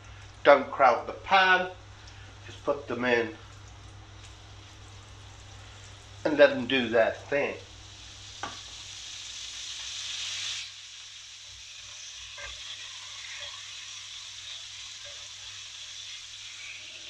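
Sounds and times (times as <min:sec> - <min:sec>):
meat sizzling in a pan: 0:01.4 - 0:17.0.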